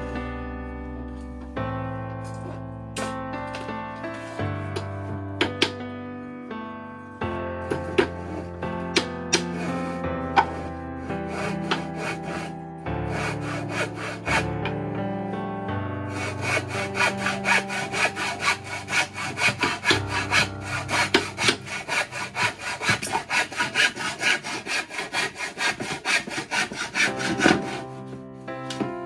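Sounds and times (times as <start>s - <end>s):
background music: 0.0s - 29.0s
handsaw cutting wood: 7.6s - 14.7s, 16.1s - 28.8s.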